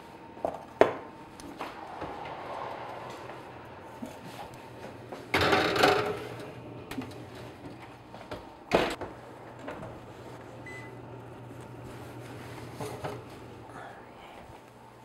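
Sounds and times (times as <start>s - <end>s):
steady low hum: 0.0s - 15.0s
metal pans clattering on oven racks: 5.3s - 7.2s.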